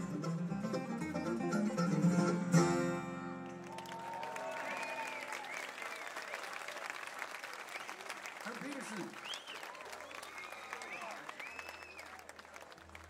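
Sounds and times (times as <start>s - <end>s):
bluegrass string band playing: 0.0s - 3.8s
audience applauding and cheering: 3.4s - 13.0s.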